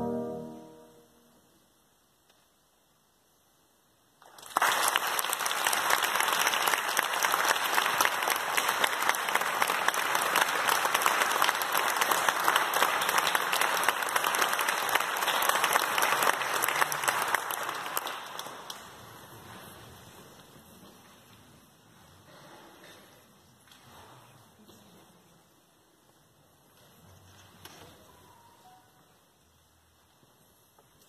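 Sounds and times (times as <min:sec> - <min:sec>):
audience applause: 0:04.2 - 0:19.2.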